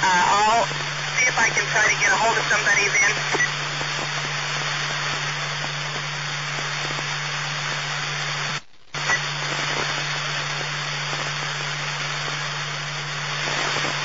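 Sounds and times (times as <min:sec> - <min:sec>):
radio click: 0:00.0 - 0:14.0
radio static hiss: 0:00.0 - 0:14.0.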